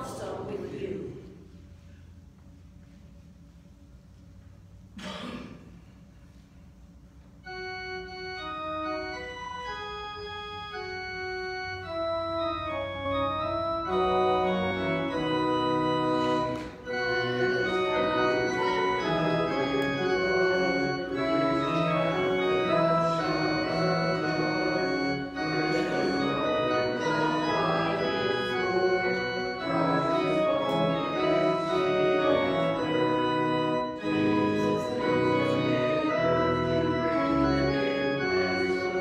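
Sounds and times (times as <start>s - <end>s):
organ playing hymn-like piece: 6.2s - 39.0s.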